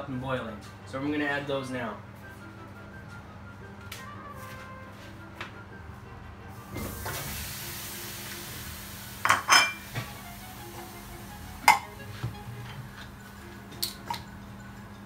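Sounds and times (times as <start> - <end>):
background music: 0.0 - 15.0
crockery and bottle clinking: 9.2 - 9.8, 11.6 - 11.9.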